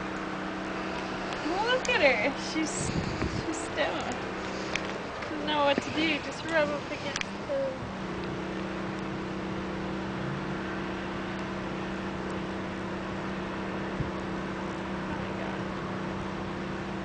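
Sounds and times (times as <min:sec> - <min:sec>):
constant hiss: 0:00.0 - 0:12.4
motor hum: 0:00.0 - 0:17.0.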